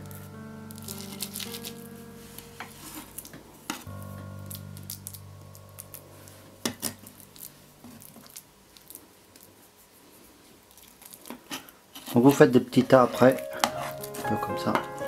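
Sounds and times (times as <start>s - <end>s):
background music chord: 0.0s - 8.1s, 12.9s - 15.0s.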